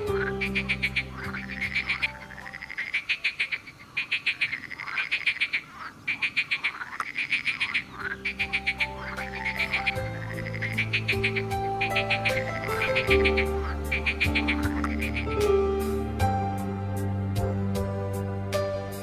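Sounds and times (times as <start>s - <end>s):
soft background music: 0.0s - 3.6s, 7.6s - 19.0s
frogs calling in chorus: 0.0s - 15.4s.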